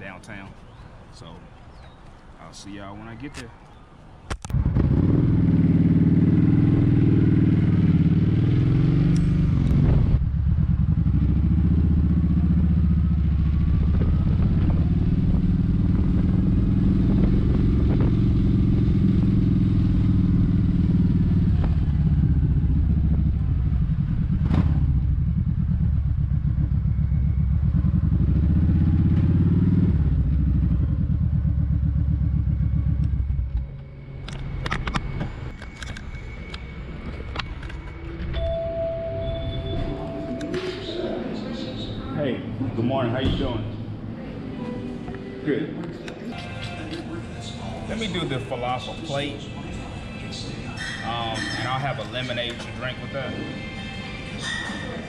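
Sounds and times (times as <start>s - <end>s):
motorcycle engine running: 4.6s - 33.8s.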